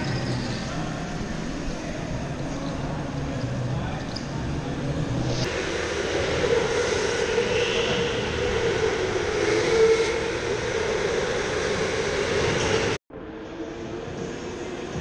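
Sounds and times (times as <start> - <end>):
electric kart motor whine: 4.2 - 13.0.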